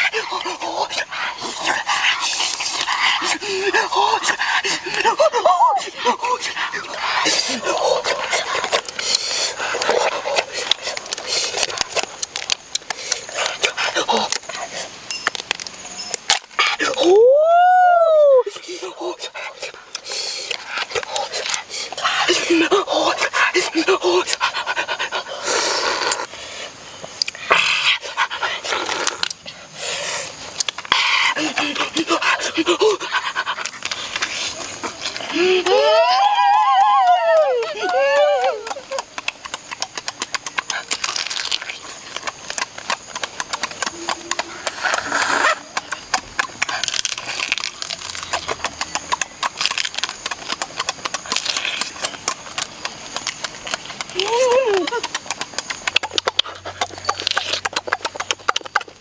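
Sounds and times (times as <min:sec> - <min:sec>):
wet chewing and sucking: 0:00.0 - 0:17.2, 0:18.4 - 0:36.0, 0:37.7 - 0:59.0
slurping crab meat: 0:05.9 - 0:15.0, 0:38.9 - 0:59.0.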